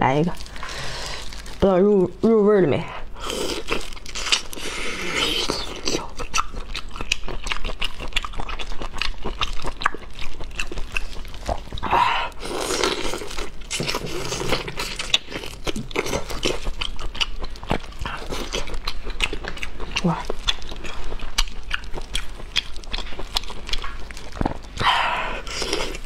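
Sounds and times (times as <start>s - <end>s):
prawn shells crunching in mouth: 0.3s - 1.8s, 3.2s - 26.0s.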